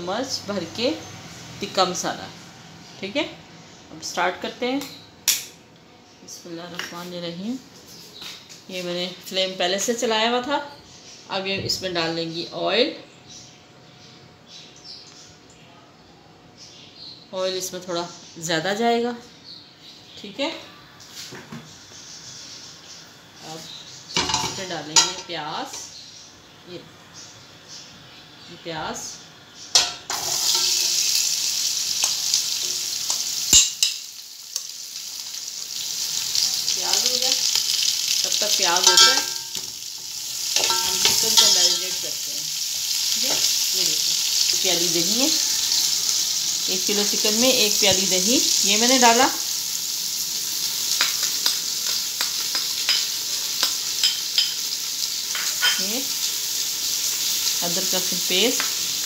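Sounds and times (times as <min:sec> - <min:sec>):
onions sizzling in hot oil: 0:23.4 - 0:26.0, 0:28.4 - 0:59.0.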